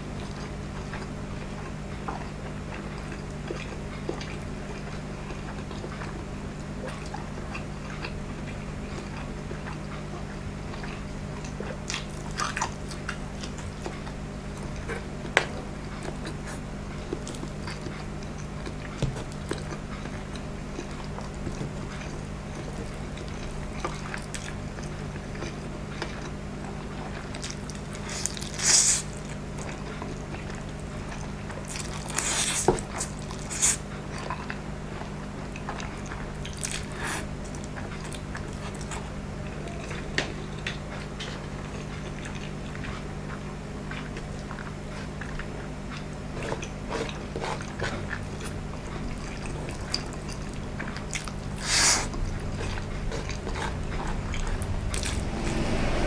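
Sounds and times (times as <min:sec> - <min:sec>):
person chewing noodles: 0:00.0 - 0:56.0
steady low hum: 0:00.0 - 0:56.0
loud slurps: 0:28.0 - 0:29.1, 0:51.5 - 0:56.0.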